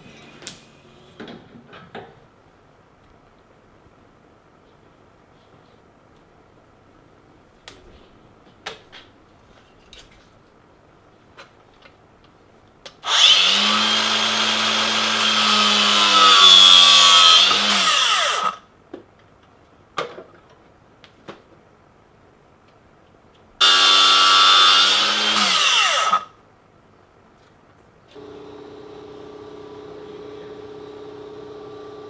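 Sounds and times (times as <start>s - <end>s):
angle grinder cutting: 13.0s - 18.6s, 23.6s - 26.3s.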